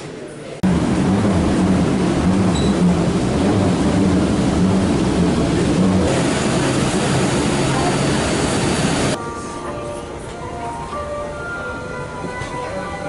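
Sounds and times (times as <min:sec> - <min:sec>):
airport ground machinery drone: 0:00.6 - 0:09.2
low hum: 0:00.6 - 0:09.2.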